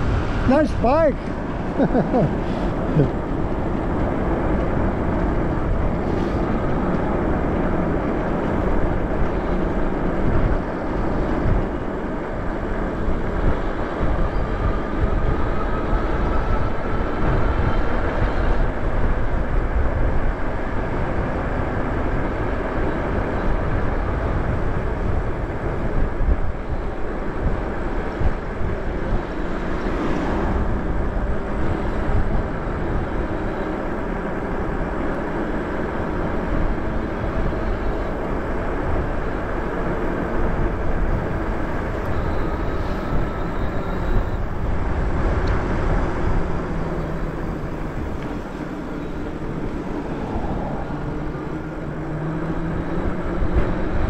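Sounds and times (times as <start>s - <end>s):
bike tyre noise on pavement: 0.0s - 54.0s
wind buffeting microphone: 0.0s - 54.0s
faint whine rising in pitch: 46.5s - 54.0s.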